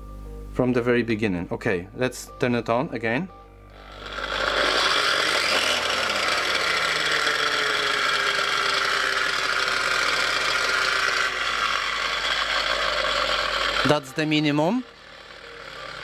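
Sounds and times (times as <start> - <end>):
sander motor running: 3.7 - 16.0.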